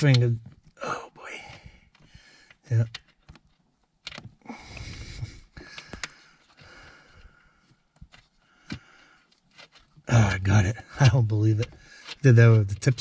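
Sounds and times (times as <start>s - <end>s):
man breathing through nose: 4.4s - 7.8s, 8.4s - 9.3s.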